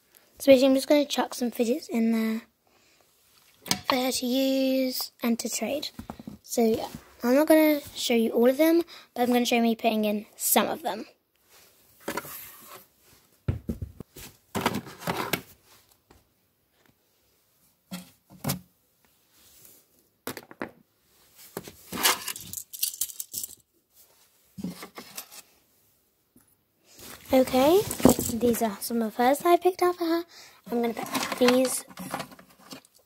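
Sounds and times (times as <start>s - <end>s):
toys being handled and dropped: 3.6s - 4.2s, 12.0s - 12.8s, 13.5s - 16.3s, 20.2s - 20.8s, 21.5s - 23.7s, 27.0s - 28.7s, 30.7s - 33.0s.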